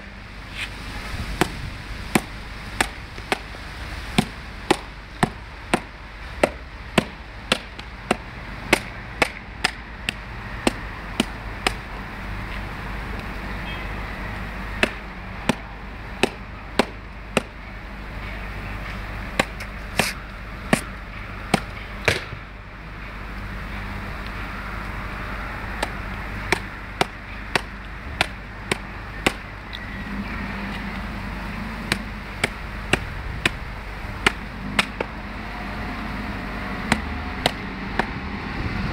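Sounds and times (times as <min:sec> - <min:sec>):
machete chopping coconut husk: 0:01.4 - 0:11.9, 0:14.7 - 0:17.6, 0:19.4 - 0:22.4, 0:25.8 - 0:29.5, 0:31.8 - 0:33.6, 0:34.2 - 0:35.2, 0:36.8 - 0:38.2.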